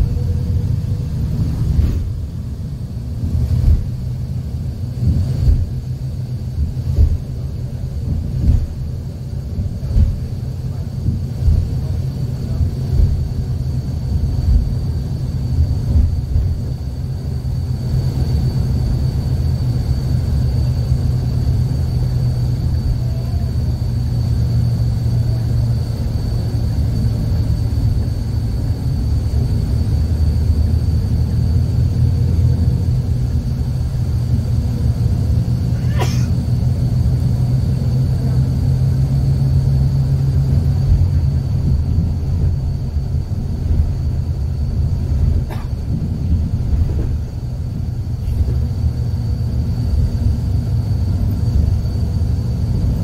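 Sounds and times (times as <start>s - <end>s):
high whine: 0.0s - 53.0s
road and engine rumble: 0.0s - 53.0s.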